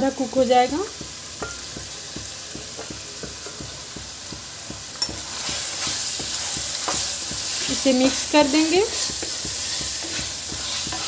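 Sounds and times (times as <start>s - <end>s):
food sizzling in oil: 0.0s - 11.0s
wooden spatula stirring: 0.1s - 11.0s.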